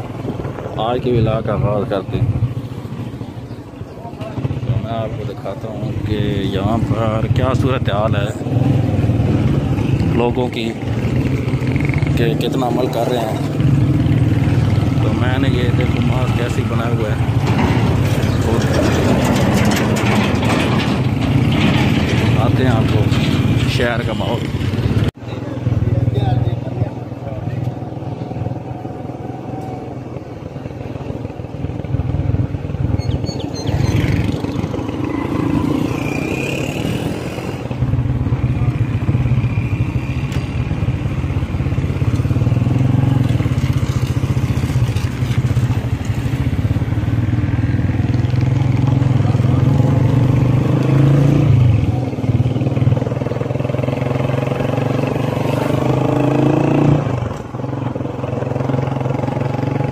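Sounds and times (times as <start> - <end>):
motorcycle engine running: 24.2 - 59.9.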